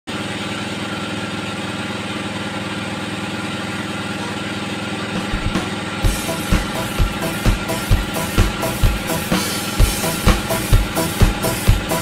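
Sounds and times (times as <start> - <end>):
band saw machinery humming: 3.8 - 12.0
low thumps: 5.2 - 12.0.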